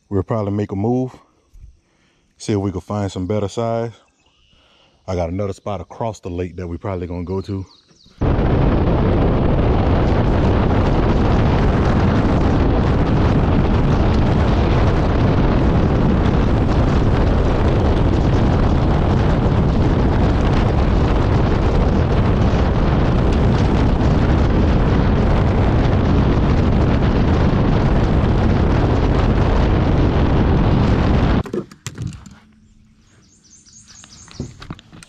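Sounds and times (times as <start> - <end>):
wind rushing on microphone: 7.2 - 31.4.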